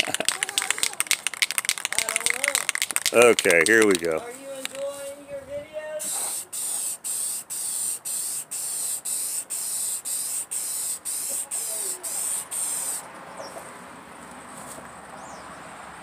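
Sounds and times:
aerosol can spraying bursts: 6.0 - 13.0.

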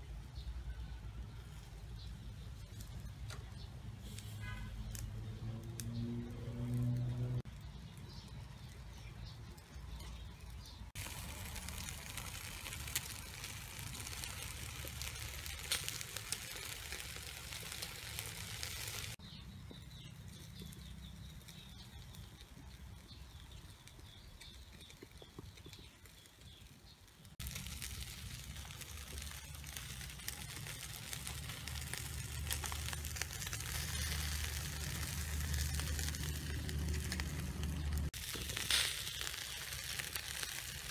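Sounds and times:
bird chirping: 7.5 - 12.3, 19.2 - 28.7
meat sizzling on a grill: 10.2 - 40.9.

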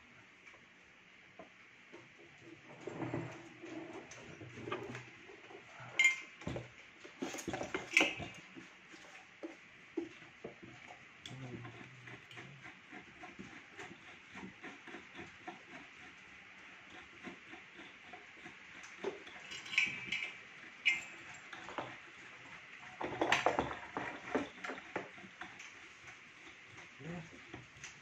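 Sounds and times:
plastic and metal parts knocking: 22.9 - 25.6.

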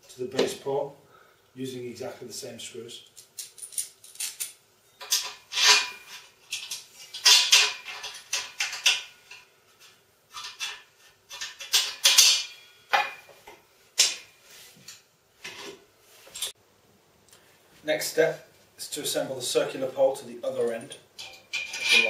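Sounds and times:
metal scraping and clinking: 3.2 - 13.4, 14.0 - 16.6, 20.4 - 22.0.

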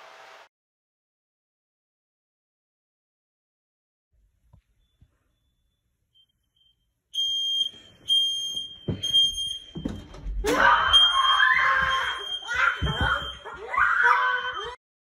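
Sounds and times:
smoke alarm beeping: 4.8 - 10.2, 10.9 - 13.5.

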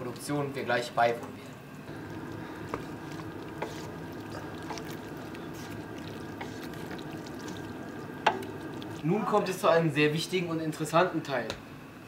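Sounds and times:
steady background hum: 0.0 - 12.0
wet churning of stirred sauce: 1.9 - 9.4.

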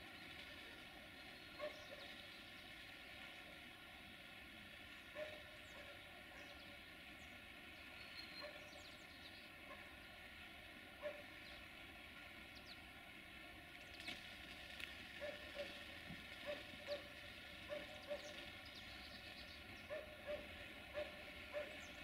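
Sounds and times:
distant diesel locomotive drone: 0.0 - 22.0
animal calls and chirps: 1.2 - 2.5, 7.9 - 9.8, 16.4 - 22.0.

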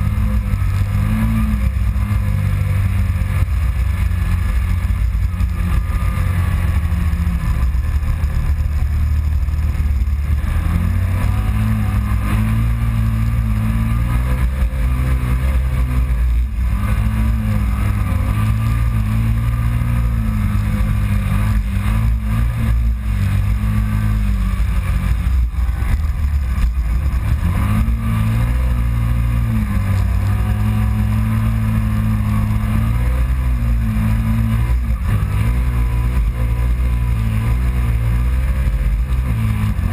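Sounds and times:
engine pulling hard: 0.0 - 39.9.

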